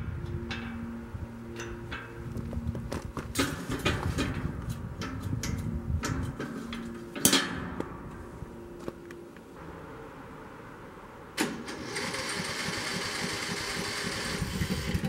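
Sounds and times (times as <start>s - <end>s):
metal clinks and knocks: 1.5s - 9.2s.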